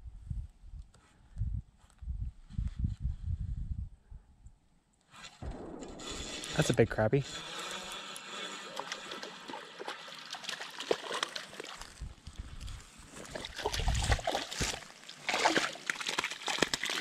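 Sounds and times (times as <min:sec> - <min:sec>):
fish splashing at water surface: 0:08.6 - 0:12.0, 0:13.2 - 0:17.0.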